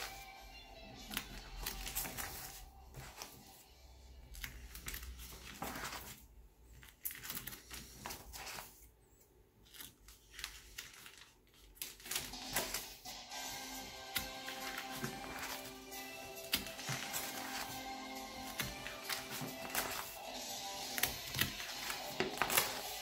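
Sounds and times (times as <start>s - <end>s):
plastic sheet protectors crinkling: 1.0s - 3.6s, 9.6s - 23.0s.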